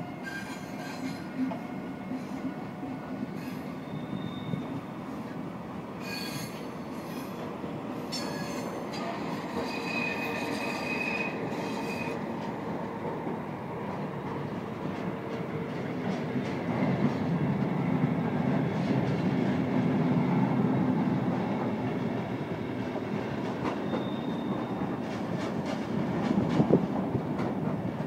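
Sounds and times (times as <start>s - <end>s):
train wheels rumbling on rails: 0.0s - 28.0s
high-pitched wheel squeal: 0.2s - 1.2s, 3.4s - 4.8s, 6.0s - 7.4s, 8.1s - 12.2s, 23.9s - 24.8s.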